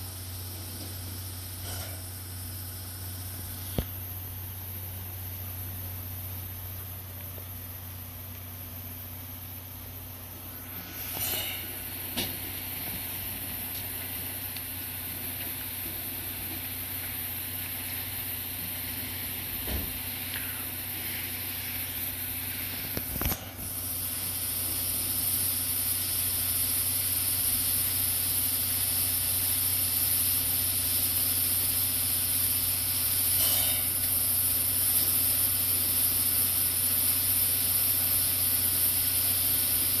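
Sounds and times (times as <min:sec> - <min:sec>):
low steady hum: 0:00.0 - 0:28.9
locomotive steam hissing: 0:08.9 - 0:40.0.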